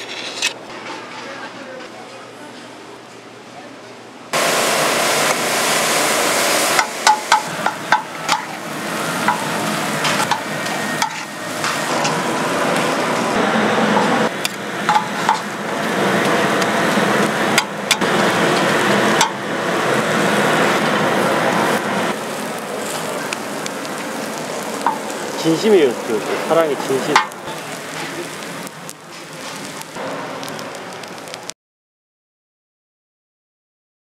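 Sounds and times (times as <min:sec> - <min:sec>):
metal utensil scraping iron: 0:00.0 - 0:00.6, 0:09.2 - 0:12.4
food sizzling in a pot: 0:04.4 - 0:31.6.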